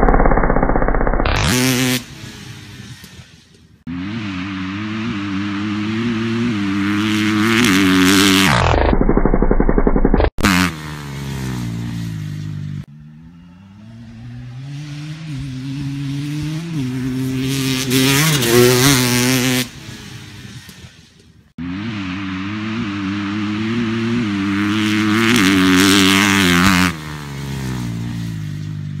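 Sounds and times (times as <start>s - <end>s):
dirt bike engines accelerating: 1.3s - 29.0s
slowed-down low engine sound: 8.4s - 10.4s.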